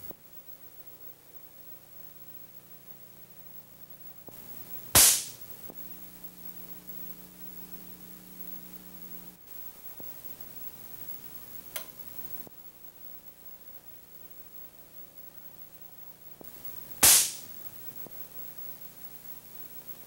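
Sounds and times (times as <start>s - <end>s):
low steady hum: 0.0s - 20.0s
electric spark cracks: 4.3s - 5.5s, 16.6s - 17.7s.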